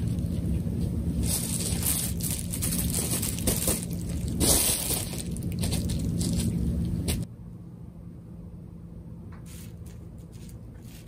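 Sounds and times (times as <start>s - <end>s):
bubble wrap crinkling and crackling: 1.2s - 7.2s
bubble wrap snapping: 1.2s - 7.2s.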